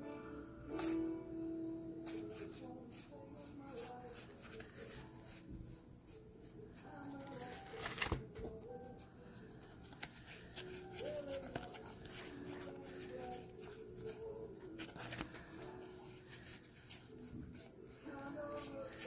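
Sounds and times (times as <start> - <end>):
trading cards clicking and rustling: 6.9 - 8.6, 9.6 - 17.7.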